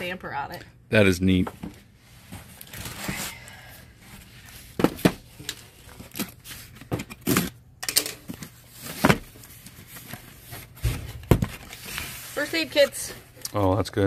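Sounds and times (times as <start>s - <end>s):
cardboard rustling: 4.1s - 7.5s, 8.3s - 13.3s.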